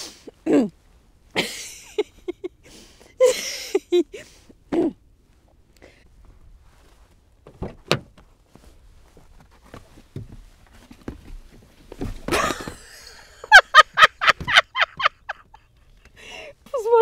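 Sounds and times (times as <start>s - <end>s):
person climbing onto seat: 6.2s - 13.2s
car door clicks and knocks: 7.4s - 8.2s.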